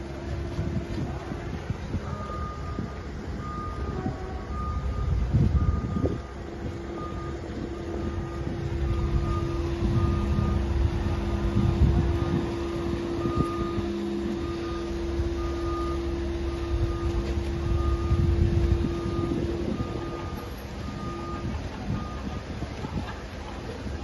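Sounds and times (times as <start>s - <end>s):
steady mechanical hum: 0.0s - 24.0s
wind rumbling on microphone: 0.0s - 24.0s
warning beeper: 6.9s - 22.6s.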